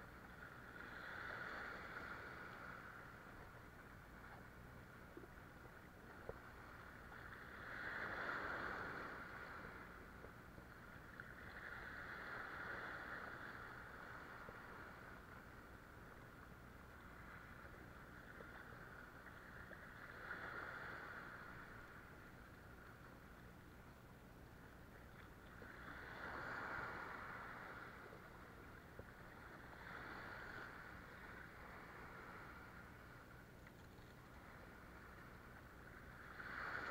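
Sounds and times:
waves breaking against rocks: 25.3 - 28.3, 36.0 - 36.9.

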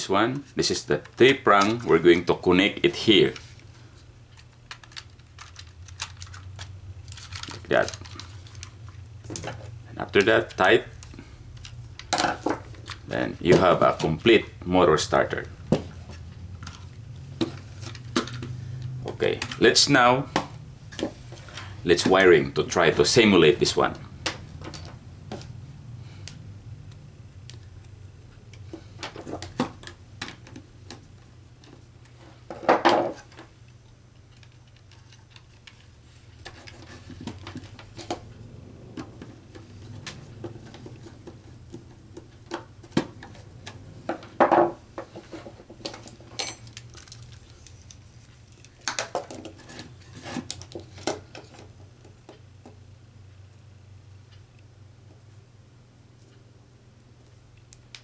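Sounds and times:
low steady hum: 0.0 - 58.0
parts clicking and knocking on bench: 38.9 - 47.1.

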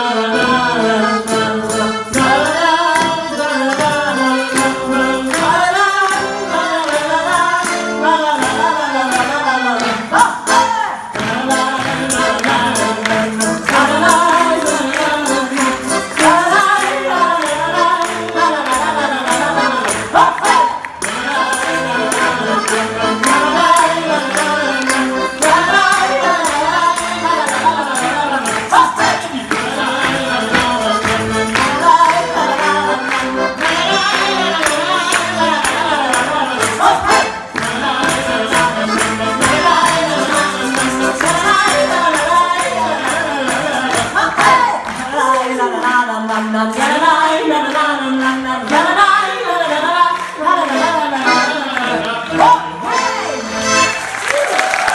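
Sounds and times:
man and woman singing: 0.0 - 53.7
piano accordion: 0.0 - 54.3
maraca shaken: 18.8 - 45.4
tambourine: 33.7 - 44.2.

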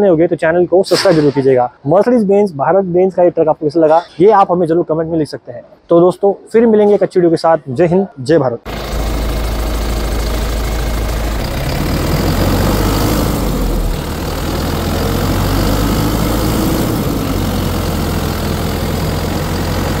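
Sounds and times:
diesel engine idling: 8.7 - 20.0.

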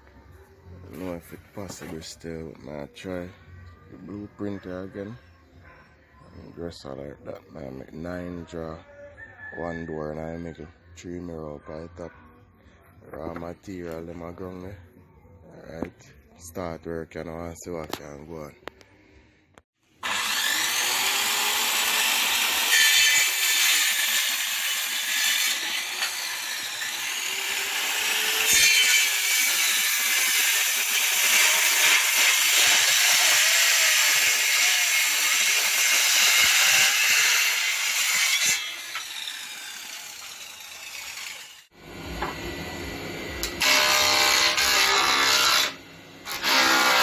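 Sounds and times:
circular saw cutting wood: 20.0 - 47.0.

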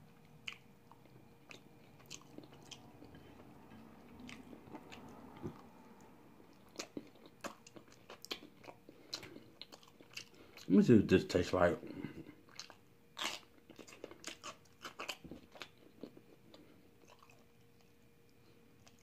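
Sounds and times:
person chewing crunchy food: 0.2 - 10.7, 11.8 - 19.0.

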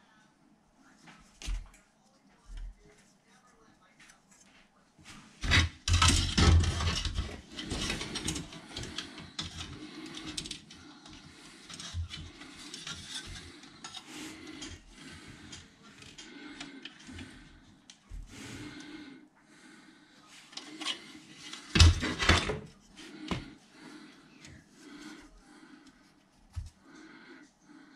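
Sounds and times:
plastic parts clicking and rattling: 5.4 - 18.0, 20.5 - 22.7.

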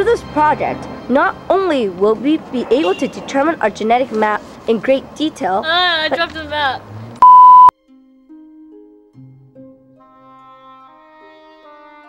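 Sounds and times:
instrumental music with held notes: 7.8 - 12.0.

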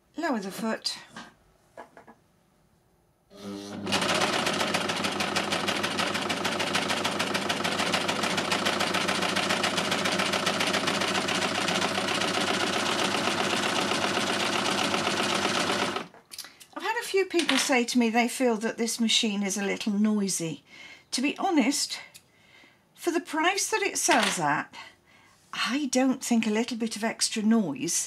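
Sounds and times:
overlocker sewing machine rattling: 3.4 - 16.1.

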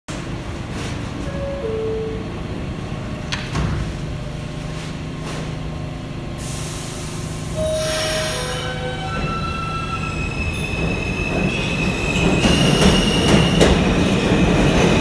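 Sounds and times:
low train hum: 0.1 - 15.0
air brakes hissing: 6.4 - 9.1.

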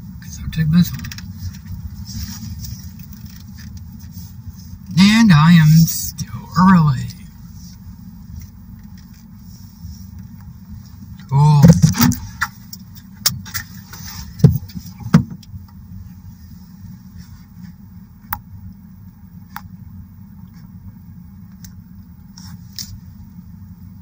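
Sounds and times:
truck engine idling: 0.0 - 24.0.

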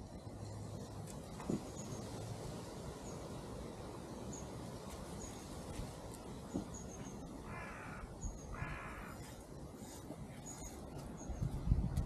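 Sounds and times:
crow cawing: 7.4 - 9.2.

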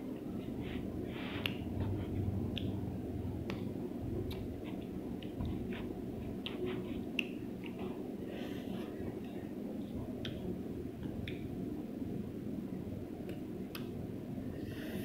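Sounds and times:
steady low hum: 0.0 - 15.0
chewing and mouth smacking: 4.3 - 8.0.

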